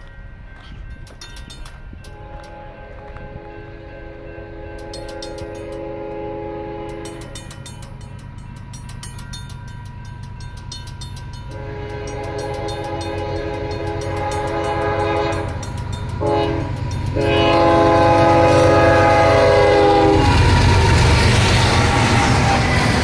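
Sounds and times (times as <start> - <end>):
railroad crossing bells ringing: 0.0 - 23.0
locomotive air horn: 2.1 - 4.7, 5.4 - 7.4, 11.5 - 15.6, 16.2 - 22.4.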